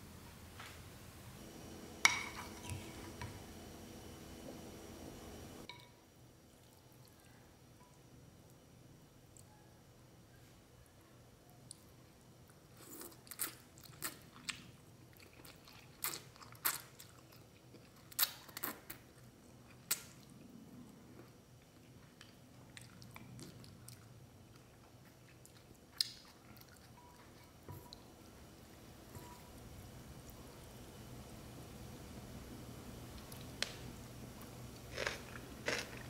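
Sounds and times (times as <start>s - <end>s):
faint chewing: 11.5s - 28.4s, 34.8s - 36.0s.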